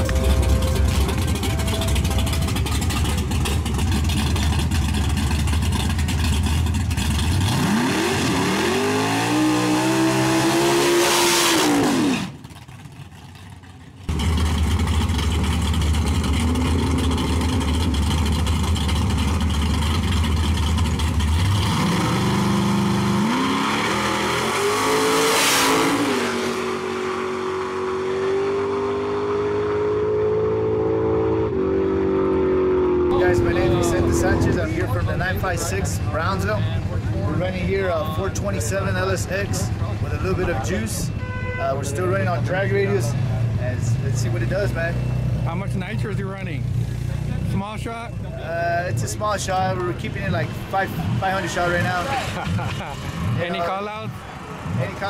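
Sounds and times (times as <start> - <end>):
race car engines idling: 0.0 - 7.8, 12.3 - 23.2, 33.1 - 55.0
engine revving: 0.0 - 12.9, 14.1 - 37.8, 49.1 - 55.0
car launching and pulling away: 0.0 - 35.1.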